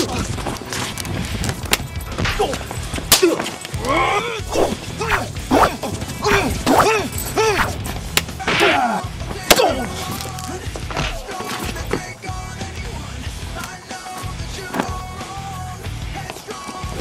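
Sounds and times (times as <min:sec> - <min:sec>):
background music: 0:00.0 - 0:17.0
short fighting shouts: 0:02.3 - 0:07.8, 0:08.4 - 0:10.0.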